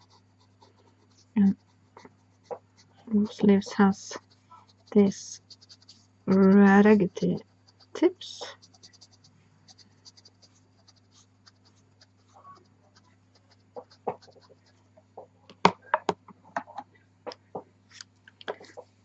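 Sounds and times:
pencil dabbing on paper: 0:00.0 - 0:14.9
faint low hum: 0:00.0 - 0:19.0.

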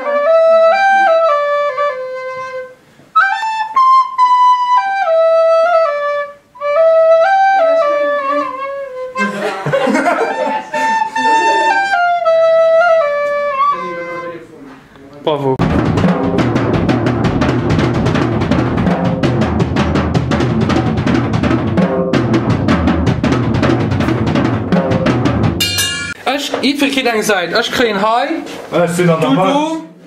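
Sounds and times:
recorder melody: 0:00.0 - 0:14.6.

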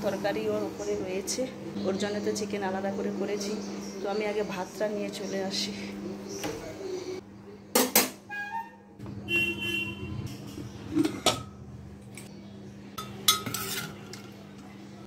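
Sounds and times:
dishes and utensils clinking: 0:10.9 - 0:12.3, 0:13.0 - 0:14.4.

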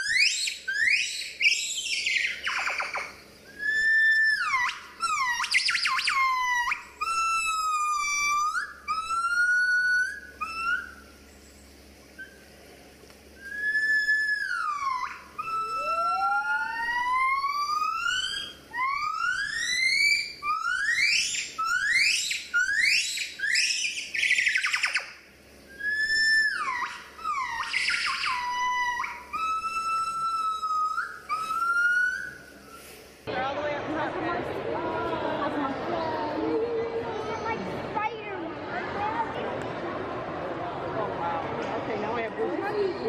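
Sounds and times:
gibbon whistle-like hoots: 0:00.0 - 0:11.2, 0:13.4 - 0:32.8.

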